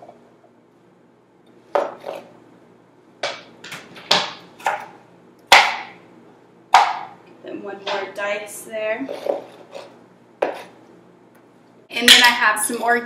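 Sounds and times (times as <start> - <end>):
knife chopping on cutting board: 4.1 - 4.9, 5.5 - 5.9.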